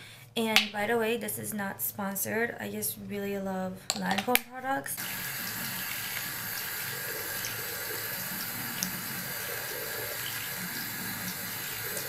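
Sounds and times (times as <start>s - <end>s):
water running from sink tap: 5.0s - 12.0s.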